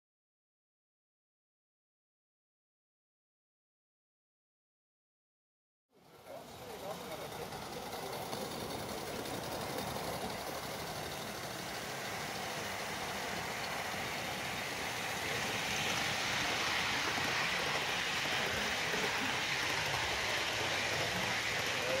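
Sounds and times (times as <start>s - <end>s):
model train running on rails: 6.0s - 22.0s
steam hissing: 6.0s - 22.0s.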